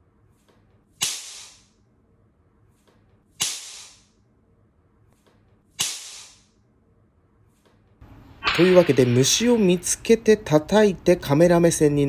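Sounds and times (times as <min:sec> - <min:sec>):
hand slaps: 0:01.0 - 0:01.6, 0:05.8 - 0:06.4.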